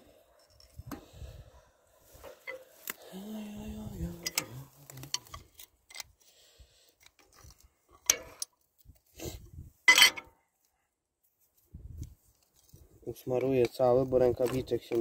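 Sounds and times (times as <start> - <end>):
metallic clinks and scrapes: 0.3 - 1.0, 2.2 - 2.8, 4.0 - 6.2, 9.8 - 10.3.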